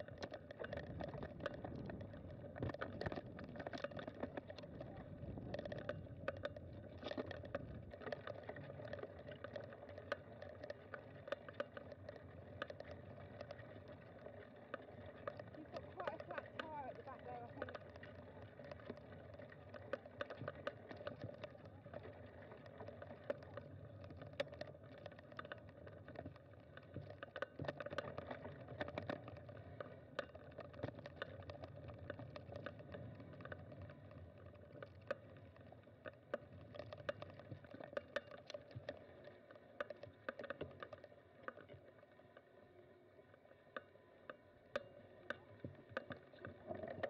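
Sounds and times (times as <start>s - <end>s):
bicycle tyre noise on dirt: 0.0s - 47.0s
bike clicks and rattles: 0.0s - 47.0s.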